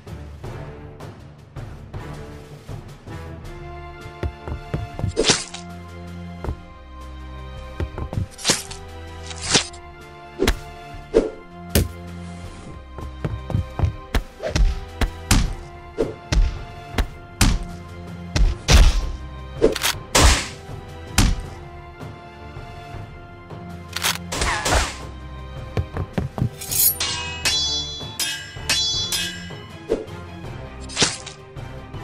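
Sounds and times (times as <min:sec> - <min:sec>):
background music: 0:00.0 - 0:32.0
punches thudding and whacking: 0:11.7 - 0:12.0, 0:13.4 - 0:19.2, 0:20.2 - 0:21.5.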